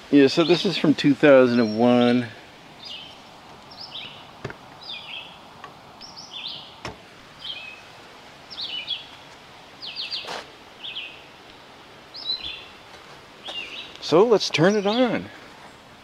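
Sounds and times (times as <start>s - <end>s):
outdoor background hiss: 0.0s - 16.0s
small birds chirping: 0.2s - 16.0s.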